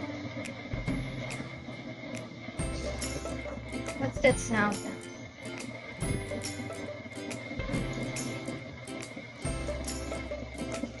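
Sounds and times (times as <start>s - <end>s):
ukulele tune: 2.7s - 11.0s.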